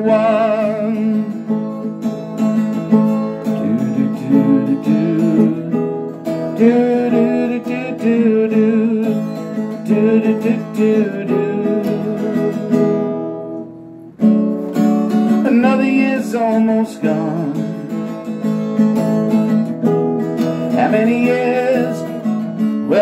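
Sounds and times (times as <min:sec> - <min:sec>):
wordless vocal with vibrato: 0:00.0 - 0:01.5, 0:03.6 - 0:05.9, 0:20.8 - 0:22.2
acoustic guitar strumming: 0:00.0 - 0:23.0.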